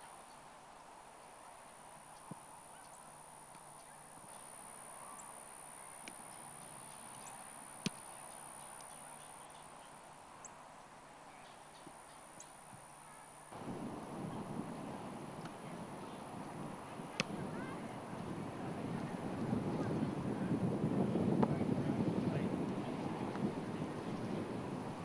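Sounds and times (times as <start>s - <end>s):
steady high whine: 2.2s - 10.6s, 12.1s - 25.0s
football kicked thud: 21.2s - 21.6s.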